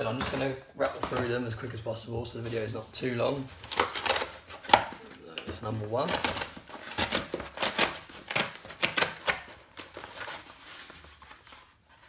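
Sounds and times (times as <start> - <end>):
cardboard tearing: 3.6 - 12.0.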